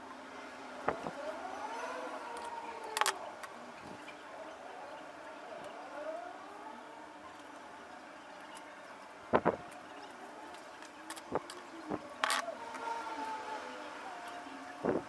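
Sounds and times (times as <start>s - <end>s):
siren wailing: 0.9s - 7.8s, 11.8s - 15.0s.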